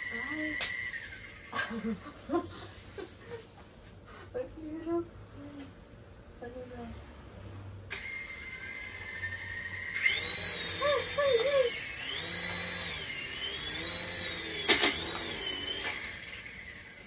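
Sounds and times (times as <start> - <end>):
toy helicopter rotors whining: 0.0 - 2.9, 7.9 - 17.0.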